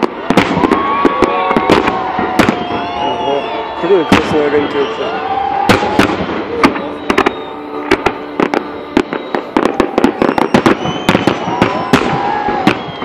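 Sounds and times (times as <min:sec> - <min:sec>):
firework shells bursting: 0:05.6 - 0:13.0.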